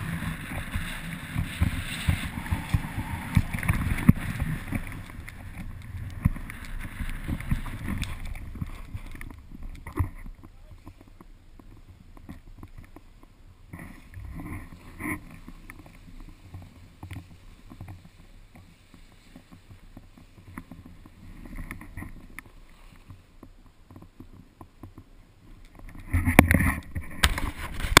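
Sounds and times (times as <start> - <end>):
ski edges scraping over snow: 0.0 - 24.5, 25.4 - 28.0.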